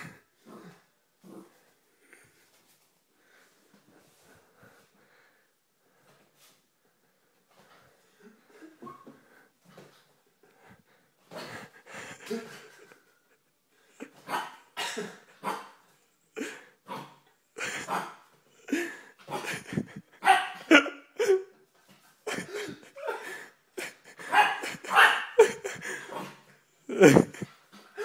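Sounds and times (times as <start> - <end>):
puppy barking and yipping: 20.2 - 20.8, 24.3 - 25.5.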